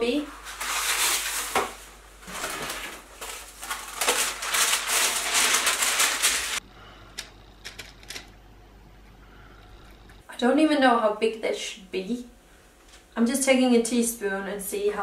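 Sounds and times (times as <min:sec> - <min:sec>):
baking paper crinkling: 0:00.1 - 0:06.6.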